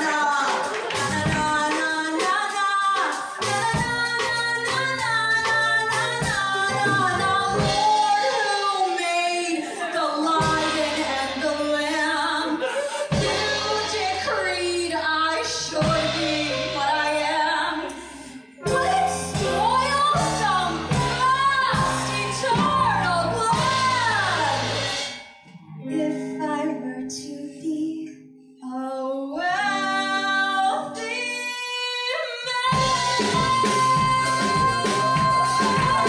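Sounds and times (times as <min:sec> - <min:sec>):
woman singing: 0:00.0 - 0:25.0, 0:25.9 - 0:36.0
band led by piano: 0:00.0 - 0:25.4, 0:32.6 - 0:36.0.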